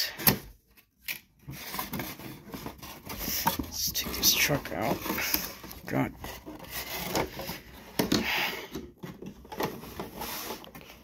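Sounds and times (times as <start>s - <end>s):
cardboard box scraping and rustling: 1.5s - 8.1s, 8.9s - 11.0s.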